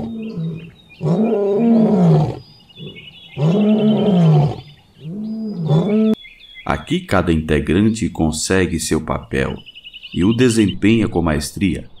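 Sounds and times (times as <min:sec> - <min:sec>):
lion roaring: 0:00.0 - 0:06.2.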